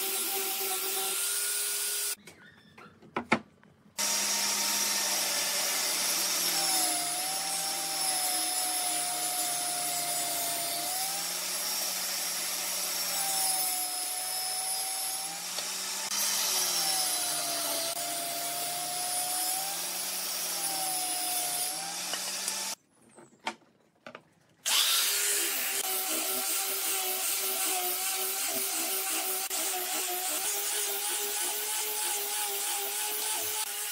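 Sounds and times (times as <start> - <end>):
angle grinder sanding: 0.0 - 2.2, 4.0 - 22.8, 24.7 - 33.9
table saw ripping wood: 24.6 - 33.9.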